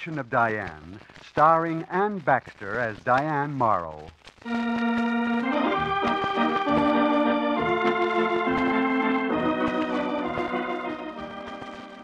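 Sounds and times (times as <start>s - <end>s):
organ playing held chords: 4.5s - 12.0s.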